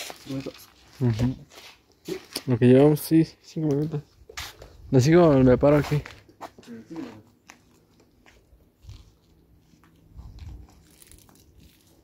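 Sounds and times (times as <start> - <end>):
footsteps on gritty concrete: 0.0 - 12.0.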